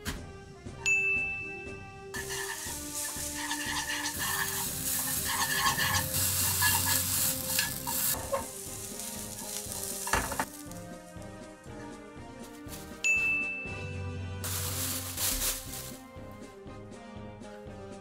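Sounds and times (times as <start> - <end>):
meat sizzling in a frying pan: 2.2 - 10.8
chopsticks stirring in pan: 2.2 - 11.2, 14.5 - 16.0.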